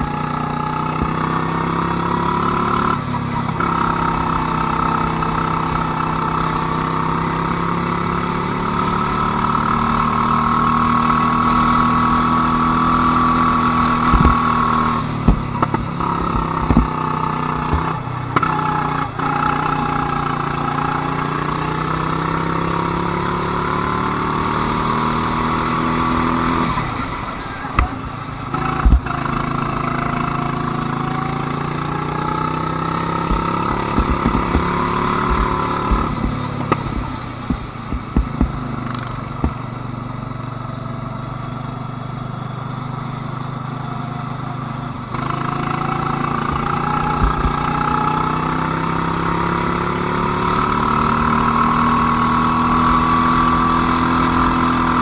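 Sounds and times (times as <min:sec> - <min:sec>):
go-kart engine running: 0:00.0 - 0:55.0
sharp knocks and clatter: 0:14.0 - 0:14.6, 0:15.2 - 0:17.0, 0:17.6 - 0:18.5, 0:27.8 - 0:29.2, 0:33.2 - 0:39.7, 0:46.4 - 0:47.7.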